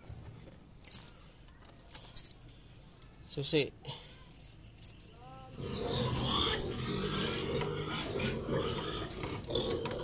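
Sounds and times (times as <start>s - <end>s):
pigs making noisy din: 5.6s - 10.0s.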